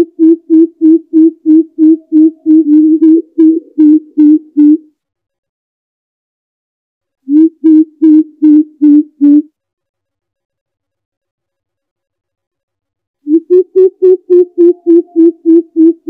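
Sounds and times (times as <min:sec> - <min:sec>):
bird deep hooting call: 0:00.0 - 0:04.9, 0:13.3 - 0:16.0.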